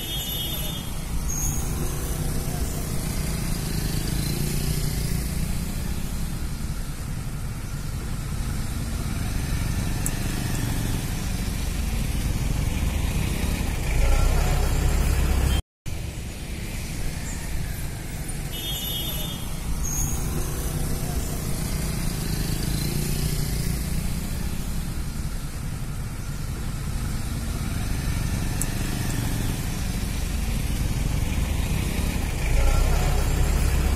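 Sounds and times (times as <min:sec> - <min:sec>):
road traffic: 0:00.0 - 0:33.9
vehicle engine idling: 0:00.0 - 0:33.9.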